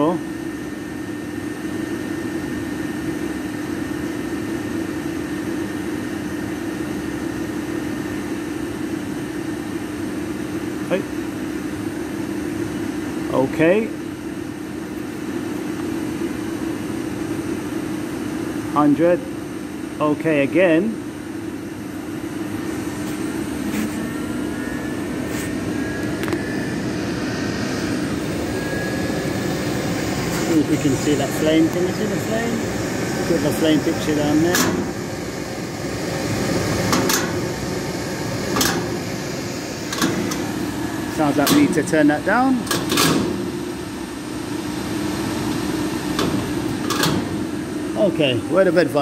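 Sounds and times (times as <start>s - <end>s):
boiler hum: 0.0s - 49.0s
gas boiler burner roaring: 0.0s - 49.0s
low hum: 22.3s - 41.9s.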